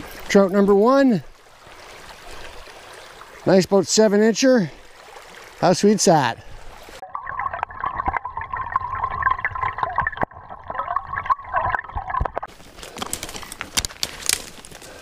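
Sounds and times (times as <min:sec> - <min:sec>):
muffled underwater stream gurgling: 0:06.4 - 0:12.5
twigs crackling underfoot: 0:12.5 - 0:15.0.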